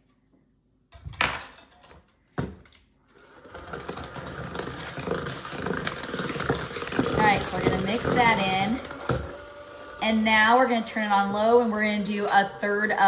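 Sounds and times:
electric hand mixer running: 3.1s - 13.0s.

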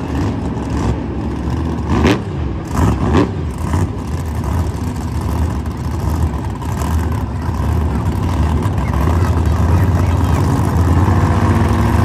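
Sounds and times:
truck engine revving: 0.0s - 12.0s.

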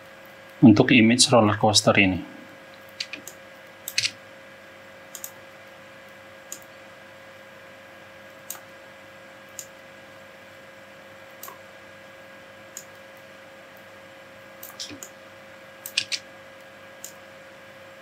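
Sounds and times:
faint hum and hiss: 0.0s - 18.0s
computer mouse clicking: 2.8s - 4.2s, 5.1s - 5.4s, 6.5s - 6.7s, 8.4s - 8.7s, 9.5s - 9.8s, 11.3s - 11.6s, 12.7s - 13.0s, 14.6s - 15.1s, 15.8s - 16.2s, 17.0s - 17.2s.

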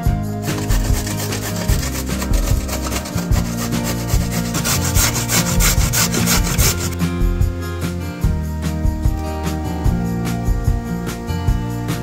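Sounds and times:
carrot rasping on a grater: 0.4s - 7.0s.

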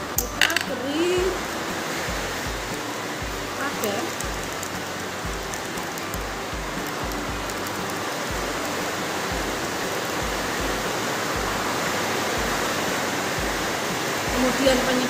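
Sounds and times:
heavy rain falling: 0.0s - 15.0s
soft low thuds: 4.2s - 14.8s.

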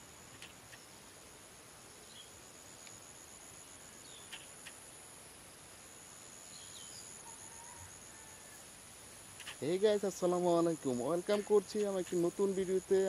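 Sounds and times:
insect chirring: 0.0s - 13.0s
soft clicks and chirps: 2.8s - 3.0s.

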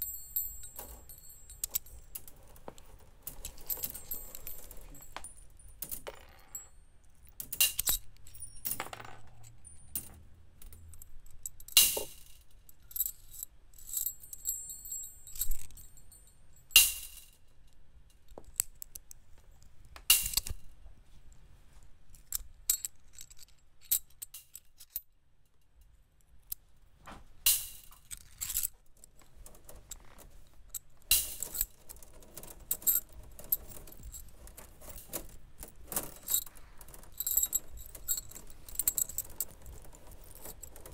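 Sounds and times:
wire sculpture clinking and jangling: 0.0s - 17.4s, 27.5s - 40.9s.

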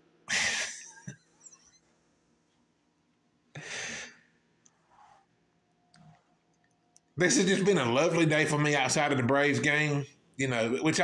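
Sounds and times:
man breathy exhales: 3.6s - 4.2s.

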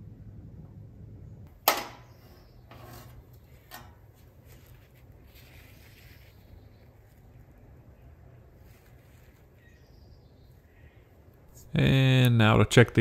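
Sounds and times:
faint low hum: 0.0s - 13.0s
rustling of handled things: 2.3s - 9.8s.

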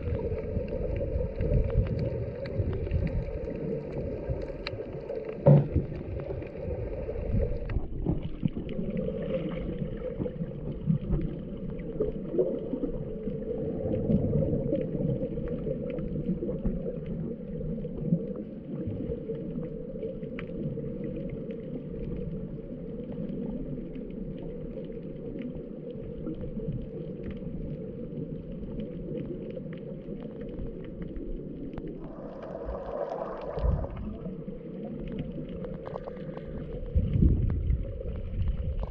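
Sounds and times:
underwater wash of moving water: 0.0s - 38.9s
faint clicks: 19.3s - 38.9s.

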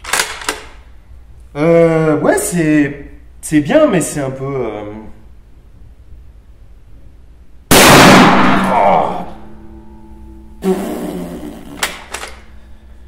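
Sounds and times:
rifle bolt rattling and clicking: 0.0s - 0.8s, 11.8s - 12.4s
rifle shot: 7.7s - 9.0s.

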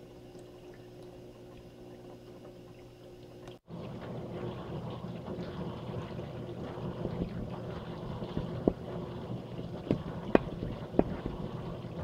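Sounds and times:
dishwasher pump hum: 0.0s - 12.0s
water spraying inside dishwasher: 3.7s - 12.0s.

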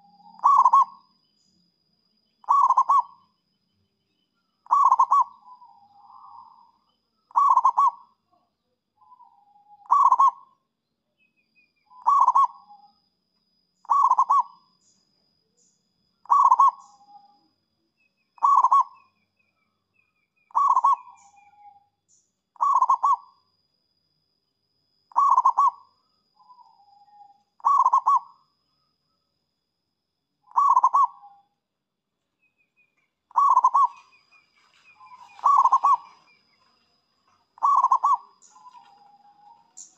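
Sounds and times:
dove cooing: 0.0s - 1.0s, 2.4s - 3.2s, 4.7s - 6.7s, 7.3s - 8.0s, 9.6s - 10.5s, 12.0s - 12.7s, 13.8s - 14.6s, 16.2s - 17.2s, 18.4s - 19.0s, 20.5s - 21.7s, 22.6s - 23.3s, 25.1s - 25.8s, 26.5s - 28.3s, 30.5s - 31.3s, 33.3s - 36.5s, 37.3s - 39.9s.

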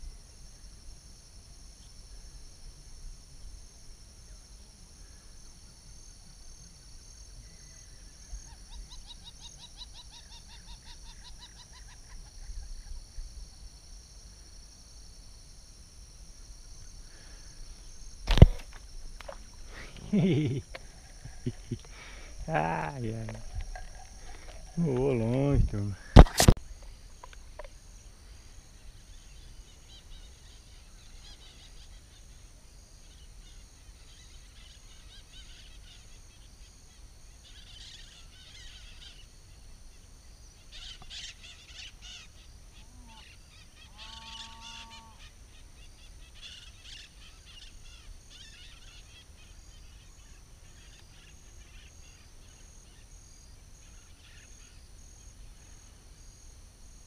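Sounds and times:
high insect drone: 0.0s - 57.0s
honking bird call: 43.1s - 45.3s.

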